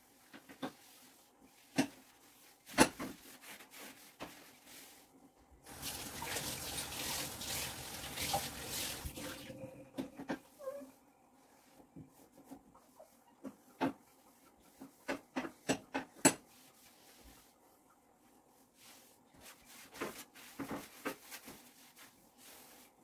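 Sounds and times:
water running from tap: 5.7s - 9.6s.

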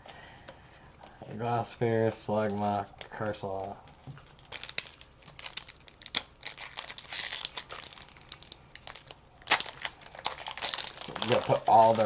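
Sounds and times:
foil wrapper crinkling: 3.2s - 12.0s.

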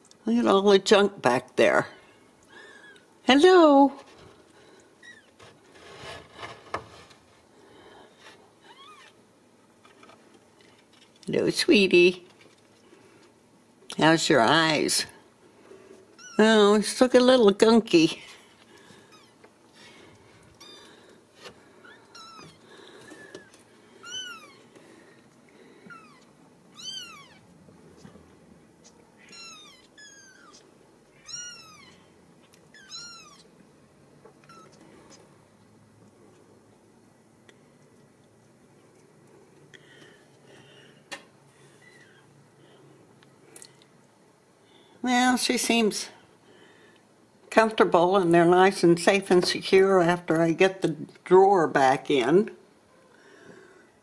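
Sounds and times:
kittens mewing: 21.8s - 24.7s, 25.8s - 27.4s, 28.8s - 32.1s, 32.7s - 33.5s.

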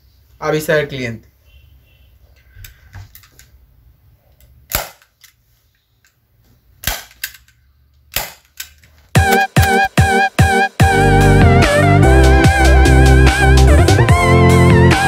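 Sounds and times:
staple gun snapping: 8.1s - 8.8s.

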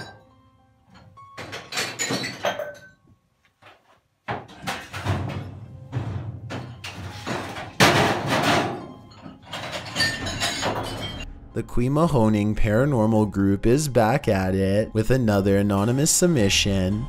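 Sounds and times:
objects knocking and banging: 0.0s - 0.2s, 0.9s - 11.3s
background music: 0.0s - 3.3s, 4.3s - 17.0s.

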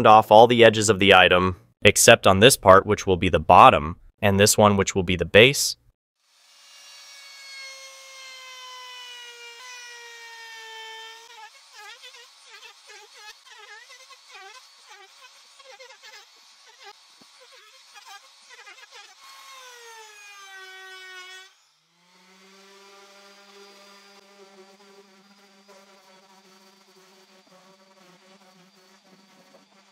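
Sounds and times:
orbit sander buzzing: 6.2s - 29.9s
trim router whining: 22.0s - 29.9s.

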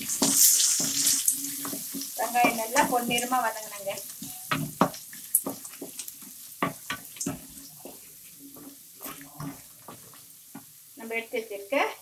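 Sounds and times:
wooden spatula scraping metal pan: 0.0s - 7.6s, 8.5s - 10.2s
faint sizzle of frying: 0.0s - 12.0s.

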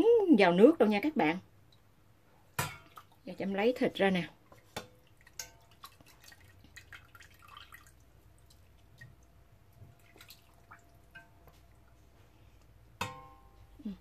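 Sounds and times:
ladle tapping pot: 2.6s - 3.1s, 4.5s - 6.2s, 13.0s - 13.5s.

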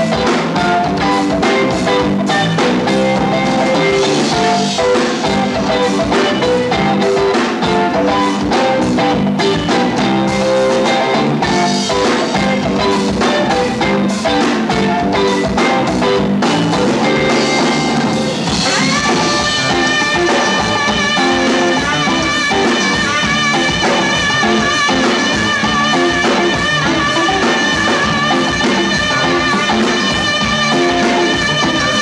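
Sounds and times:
funk rock band playing: 0.0s - 32.0s
saxophone held notes: 17.3s - 32.0s.

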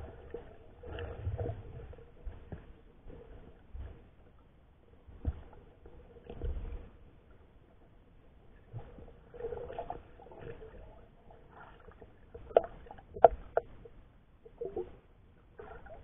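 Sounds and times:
underwater gurgling: 0.0s - 4.0s, 8.5s - 16.0s.

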